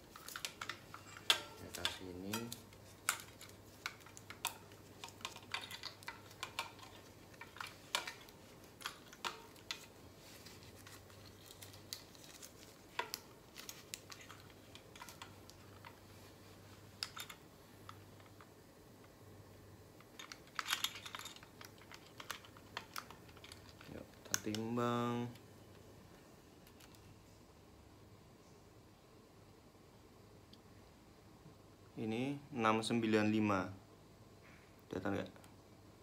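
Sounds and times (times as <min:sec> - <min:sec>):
faint low hum: 0:00.0 - 0:36.0.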